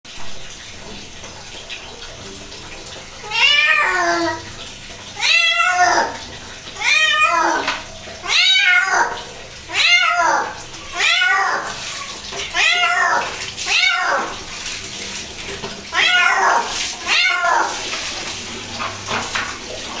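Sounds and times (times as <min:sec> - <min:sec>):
cat meowing loudly: 0:06.8 - 0:14.4, 0:15.9 - 0:17.8.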